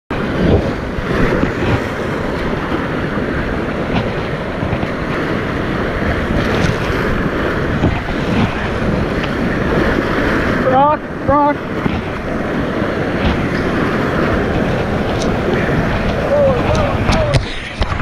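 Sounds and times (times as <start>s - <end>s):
whitewater rapids rushing: 0.1s - 18.0s.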